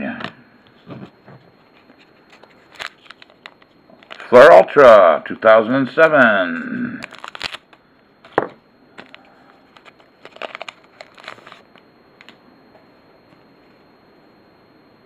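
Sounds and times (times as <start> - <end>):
wrapper crinkling: 2.4 - 4.3, 7.0 - 8.4, 9.0 - 11.6.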